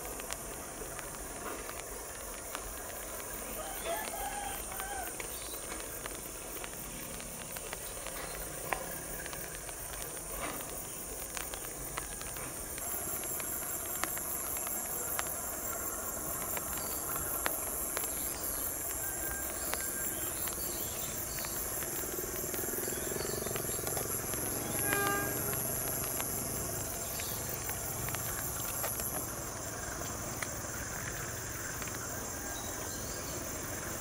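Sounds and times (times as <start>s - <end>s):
high-pitched insect chirring: 11.8s - 32.0s.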